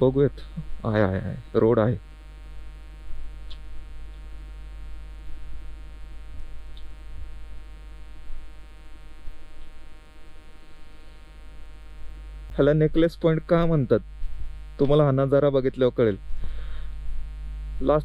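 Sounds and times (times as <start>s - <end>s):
steady electrical hum: 0.0s - 18.0s
faint ticks: 6.7s - 7.0s.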